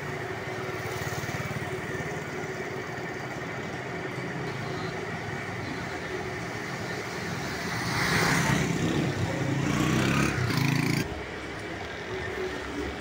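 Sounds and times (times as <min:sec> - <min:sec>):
street noise hum: 0:00.0 - 0:13.0.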